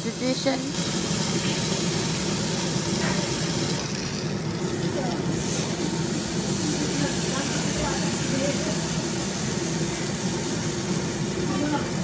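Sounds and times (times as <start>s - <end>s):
meat sizzling on a grill: 0.0s - 12.0s.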